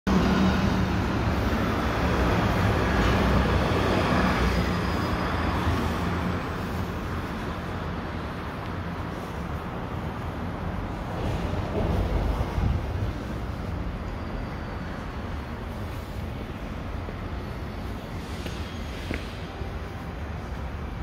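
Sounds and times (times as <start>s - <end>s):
city street traffic rumble: 0.1s - 21.0s.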